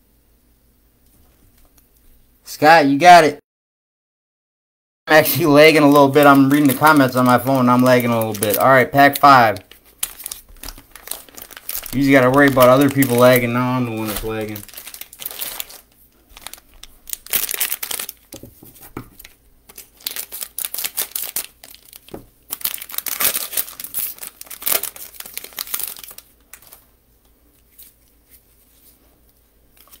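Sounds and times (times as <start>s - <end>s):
plastic wrapper tearing and crinkling: 5.1s - 26.9s, 29.7s - 30.0s.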